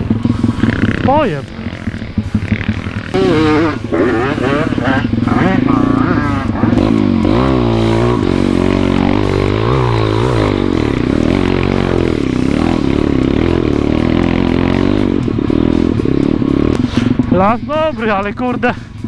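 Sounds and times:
dirt bike engine revving: 0.0 - 18.8.

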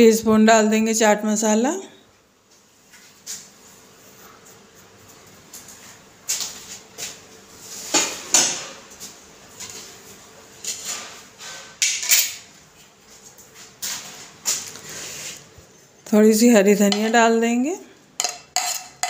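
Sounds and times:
kitchen utensils and dishes clattering: 7.8 - 8.9, 10.6 - 12.5, 18.2 - 19.0.

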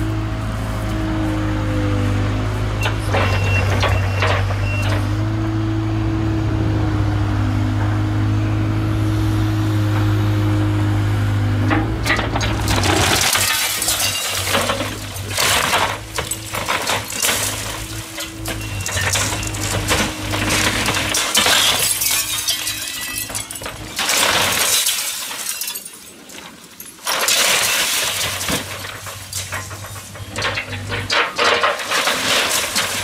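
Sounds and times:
excavator engine running: 0.0 - 24.4, 28.4 - 33.0
wood and metal frames crashing: 2.7 - 5.3, 11.2 - 33.0
glass shattering: 12.1 - 33.0.

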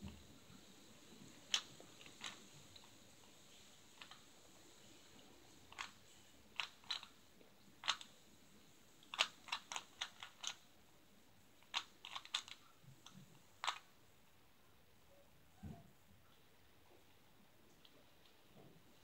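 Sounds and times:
puzzle cube plastic clicking: 1.5 - 3.0, 3.9 - 4.3, 5.7 - 7.2, 7.8 - 8.2, 9.0 - 10.6, 11.6 - 13.9.

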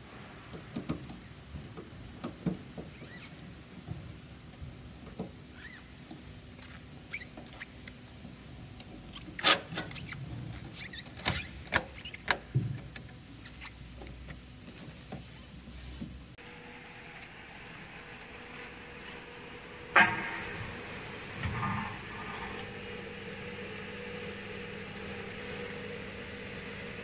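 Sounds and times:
steady hum: 16.3 - 27.0.

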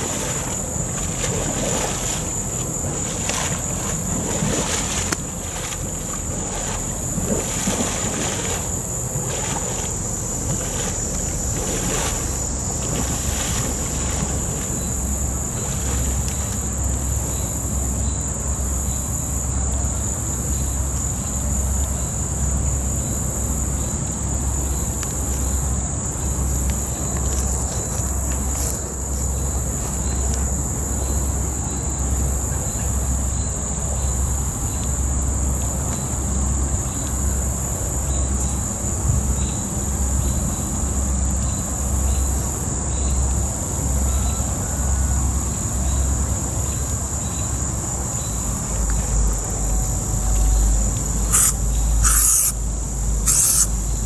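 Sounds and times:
low pulsing rumble: 0.0 - 17.4
insects buzzing drone: 0.0 - 54.0
pulsing insect trill: 0.0 - 54.0.

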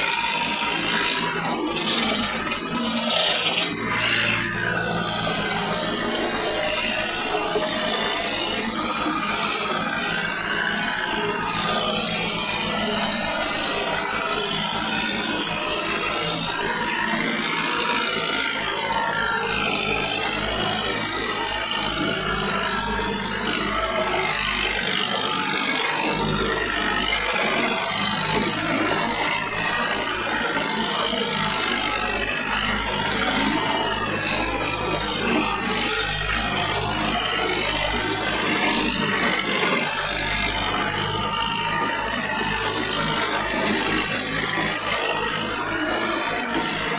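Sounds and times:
tractor diesel engine running: 0.0 - 19.2, 19.9 - 46.9.

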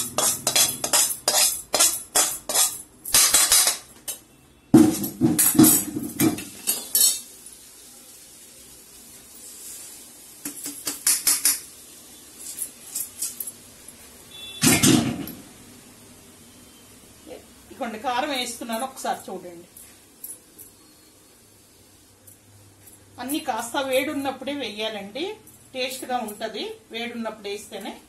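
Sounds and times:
steel spoon scraping a pan: 0.0 - 3.8, 6.4 - 7.3
steel cookware clattering: 0.0 - 3.9, 4.9 - 7.3.

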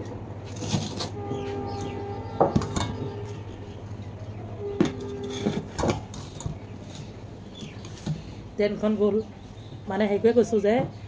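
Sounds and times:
low steady hum: 0.0 - 11.0
steel bowls and spoon clinking: 0.6 - 8.0.

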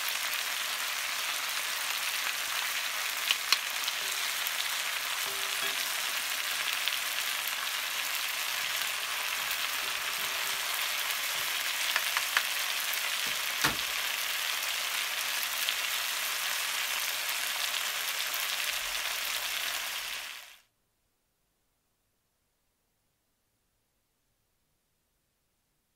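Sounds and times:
vegetables sizzling in a pan: 0.0 - 20.7.

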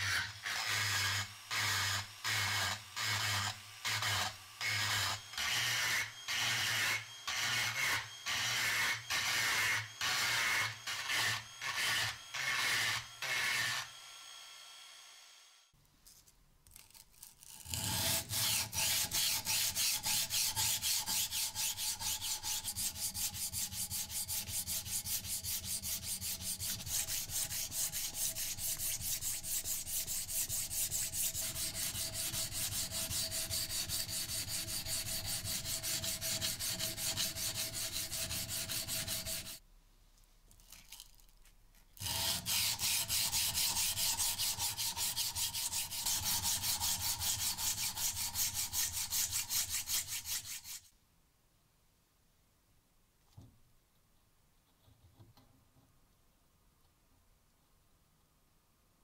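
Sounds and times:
rotary tool grinding steel: 0.0 - 14.4, 17.2 - 39.6, 42.0 - 50.8
sanding stick rubbing on steel: 18.0 - 39.6, 42.0 - 50.9.

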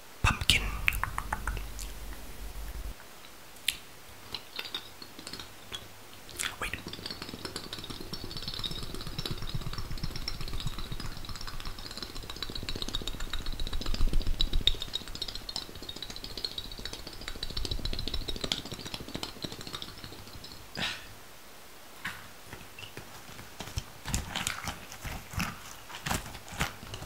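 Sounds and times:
crisp rapid taps and clicks: 0.3 - 2.9, 4.3 - 20.8
soft low thumps: 0.4 - 3.0.

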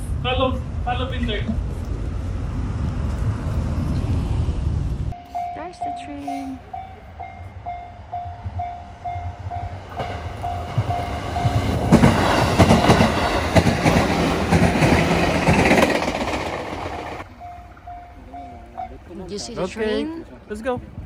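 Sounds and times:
train rumble: 0.0 - 21.0
level crossing bell ringing: 5.2 - 9.8, 17.3 - 19.0
train wheels clacking on rails: 5.3 - 19.0.

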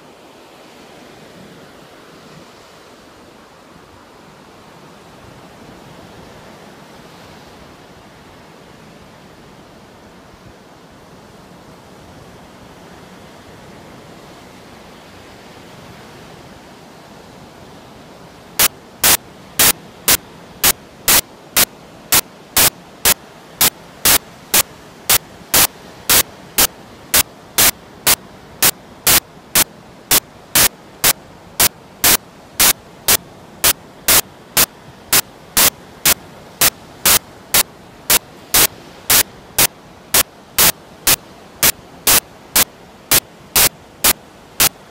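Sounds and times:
surf and wind hiss: 0.0 - 44.9
sharp static bursts: 18.6 - 44.8.

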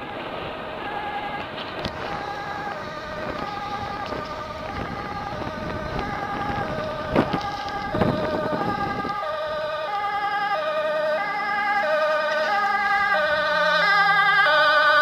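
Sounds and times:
fire engine two-tone siren: 0.1 - 15.0.

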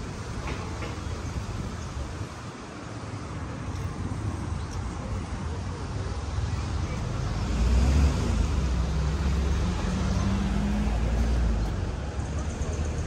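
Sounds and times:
vehicle engine rumble passing: 5.3 - 13.0.

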